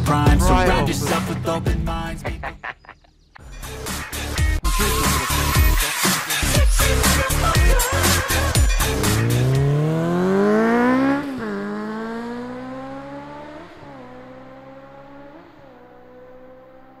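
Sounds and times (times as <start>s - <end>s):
motorcycle engine accelerating: 7.2s - 17.0s.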